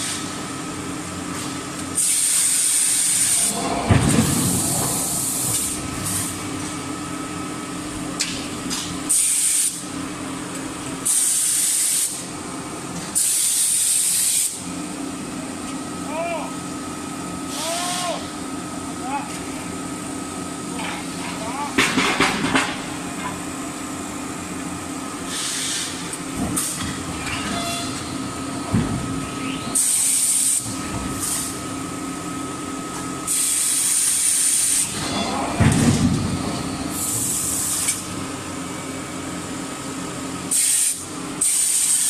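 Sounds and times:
machine hum: 0:03.0 - 0:09.2, 0:25.9 - 0:33.4, 0:34.8 - 0:40.4
deep rumbling burst: 0:03.5 - 0:06.6
loud hissing spray: 0:40.5 - 0:42.0.

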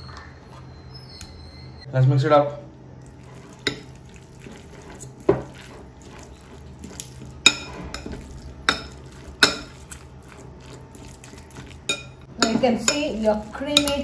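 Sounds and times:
utensil scraping bowl: 0:03.0 - 0:14.0.

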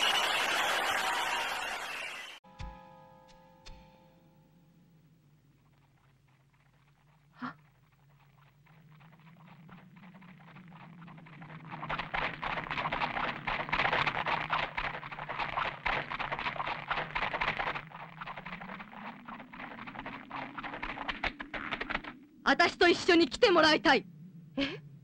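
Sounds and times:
camel hoofbeats galloping: 0:05.3 - 0:22.2.

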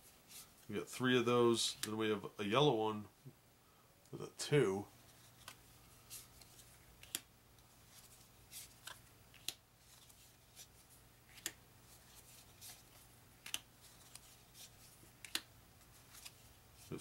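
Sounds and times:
cards snapping and sliding: 0:05.3 - 0:07.3, 0:08.5 - 0:10.7, 0:11.3 - 0:16.4.

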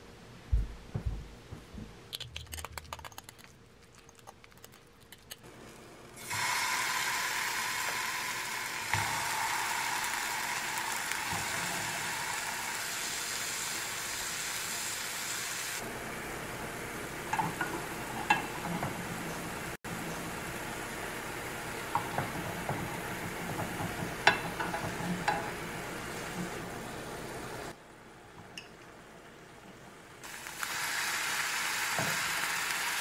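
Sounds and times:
tofu sizzling in oil: 0:06.2 - 0:15.8, 0:30.2 - 0:33.0.

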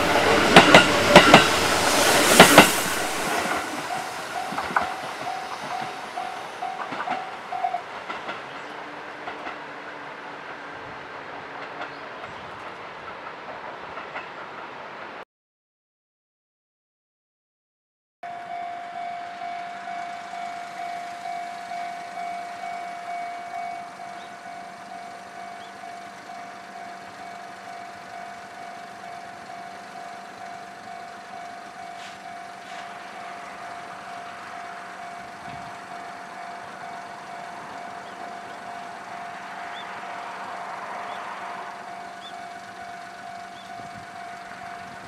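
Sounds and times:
level-crossing warning bell: 0:00.0 - 0:10.9, 0:18.2 - 0:45.0
electric train approaching: 0:00.0 - 0:15.2, 0:18.2 - 0:45.0.

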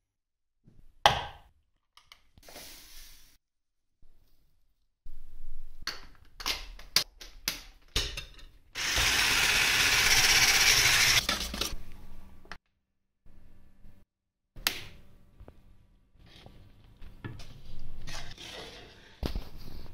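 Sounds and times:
electric hand mixer beating: 0:08.8 - 0:11.2.

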